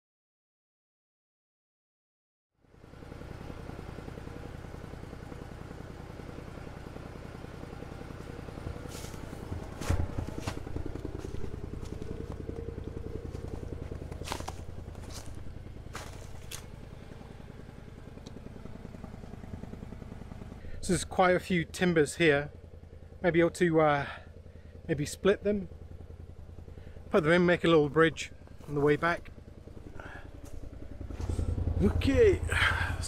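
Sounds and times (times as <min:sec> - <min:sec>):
utility vehicle engine running: 0:02.6 - 0:33.0
brush and frozen ground crunching: 0:08.0 - 0:17.3.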